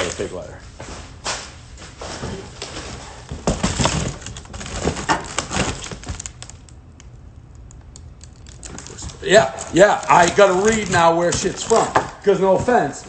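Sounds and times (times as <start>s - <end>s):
cardboard boxes rustling and scraping: 0.8s - 6.2s, 10.1s - 13.0s.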